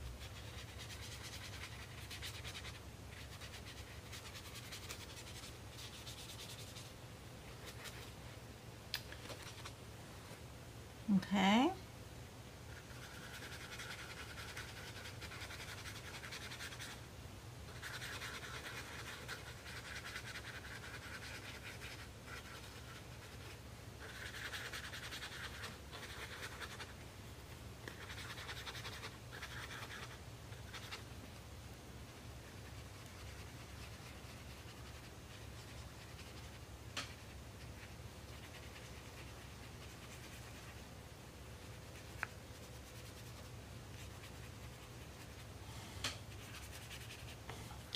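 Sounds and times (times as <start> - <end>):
brush scrubbing on paper: 0.2 - 6.9, 12.7 - 17.0, 17.7 - 27.0, 27.9 - 31.0, 32.4 - 40.8, 41.6 - 45.5, 46.3 - 47.4.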